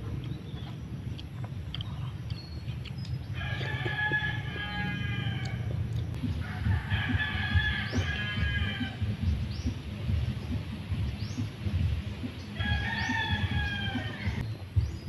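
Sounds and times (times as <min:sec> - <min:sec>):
steady low rumble: 0:00.0 - 0:15.0
rooster crowing: 0:03.4 - 0:09.1, 0:12.6 - 0:14.4.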